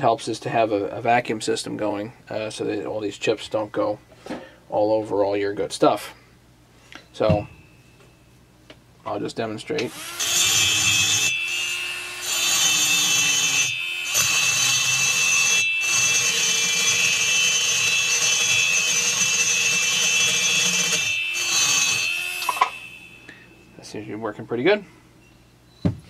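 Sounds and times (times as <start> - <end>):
high-speed grinder whine: 9.9 - 23.4.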